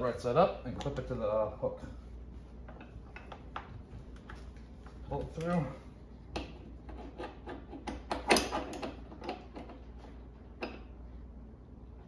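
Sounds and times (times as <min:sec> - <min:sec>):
harness webbing rubbing and scraping: 0:06.6 - 0:10.3.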